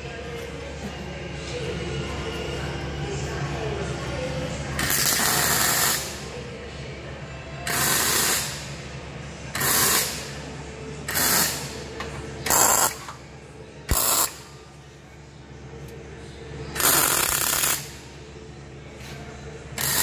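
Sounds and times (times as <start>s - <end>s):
low welder hum: 1.5s - 6.7s, 7.6s - 13.3s, 13.9s - 14.7s, 15.8s - 20.0s
arc welding bursts: 4.8s - 6.2s, 7.7s - 8.7s, 9.6s - 10.3s, 11.1s - 11.7s, 13.9s - 14.4s, 16.8s - 17.9s, 19.8s - 20.0s.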